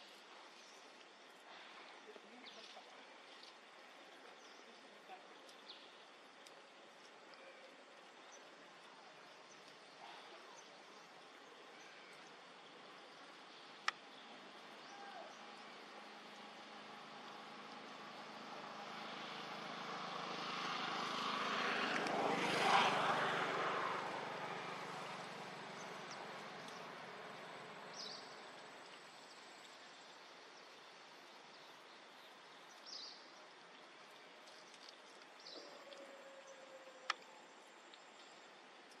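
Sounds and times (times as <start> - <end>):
distant engine passing by: 15.3 - 28.8.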